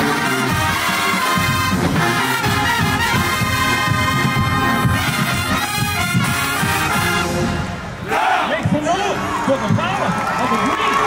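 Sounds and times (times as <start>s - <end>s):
driving drum beat: 0.0s - 7.4s
marching band brass: 0.0s - 10.2s.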